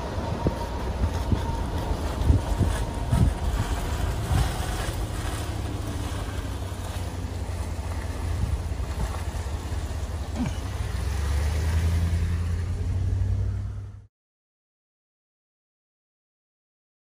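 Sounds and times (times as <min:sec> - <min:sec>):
wind on microphone: 0:00.0 - 0:10.0
rushing creek water: 0:00.0 - 0:12.8
vehicle engine and road rumble: 0:00.0 - 0:14.1.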